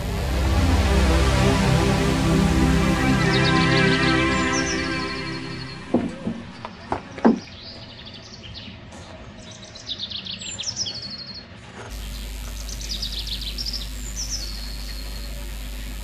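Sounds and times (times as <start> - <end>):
steady low hum: 0.0 - 6.7, 11.9 - 16.0.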